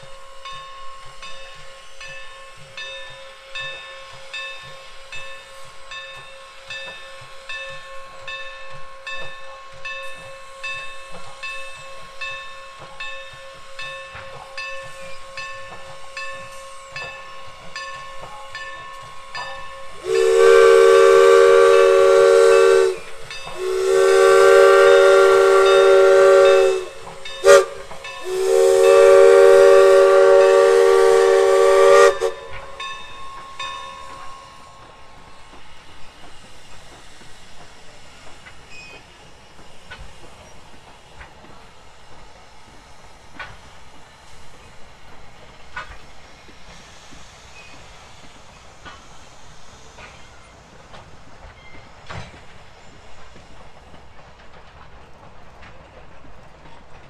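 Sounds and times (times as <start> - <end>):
steam locomotive chugging: 0.0 - 57.0
steam whistle: 10.1 - 35.0.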